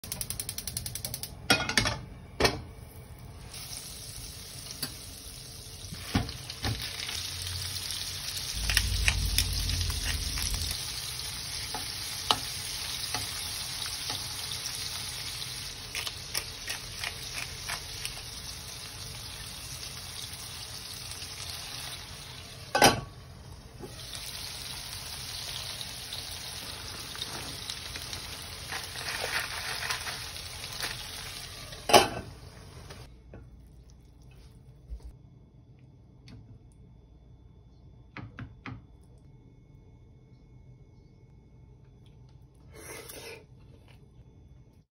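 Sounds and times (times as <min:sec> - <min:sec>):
chicken sizzling in a frying pan: 0:03.0 - 0:33.1.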